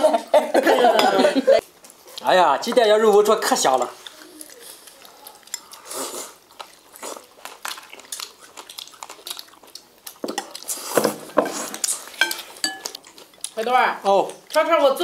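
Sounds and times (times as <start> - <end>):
chewing and mouth sounds: 3.0 - 14.7.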